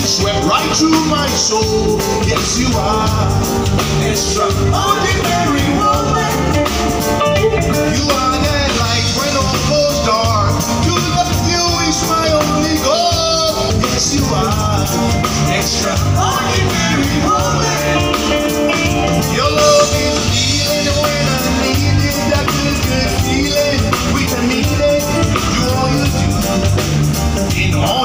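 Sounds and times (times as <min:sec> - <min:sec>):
live band playing: 0:00.0 - 0:28.0
man singing lead: 0:00.0 - 0:28.0.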